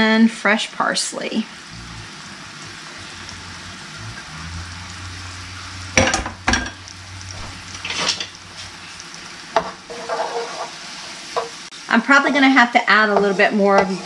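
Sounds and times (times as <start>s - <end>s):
garlic sizzling in oil: 0.0s - 14.0s
kitchenware clattering: 6.0s - 6.8s, 7.4s - 8.4s, 9.6s - 11.6s.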